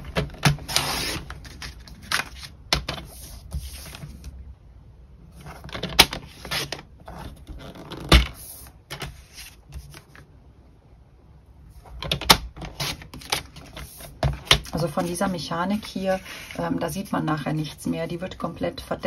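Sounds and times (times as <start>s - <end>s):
paper handling: 0.0s - 4.3s, 8.3s - 10.3s.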